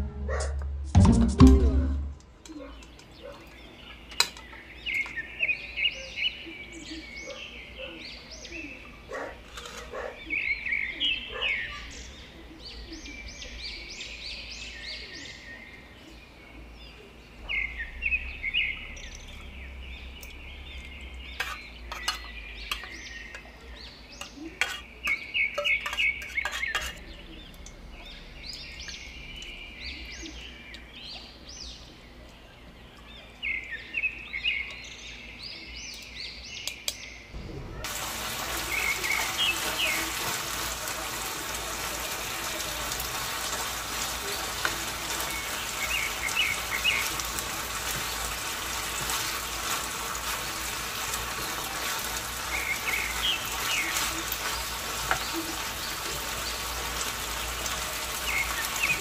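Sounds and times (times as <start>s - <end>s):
fish sizzling in a pan: 37.8s - 59.0s.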